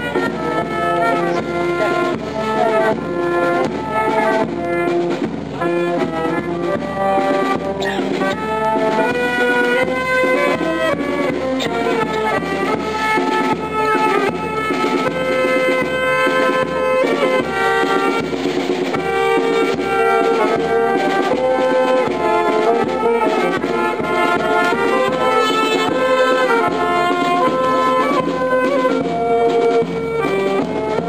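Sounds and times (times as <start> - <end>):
brass band playing march: 0.0 - 31.0.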